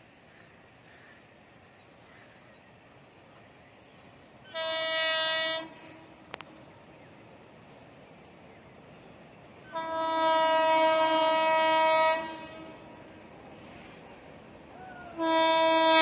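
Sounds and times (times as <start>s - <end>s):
locomotive air horn blast: 4.5s - 6.0s, 9.7s - 13.0s, 15.1s - 16.0s.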